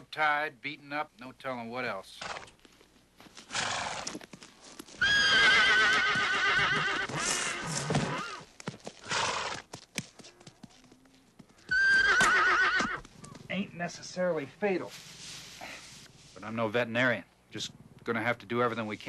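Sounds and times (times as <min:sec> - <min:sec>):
hoof clatter: 0:02.5 - 0:13.5
pony whinnying: 0:05.0 - 0:09.6, 0:11.6 - 0:13.4.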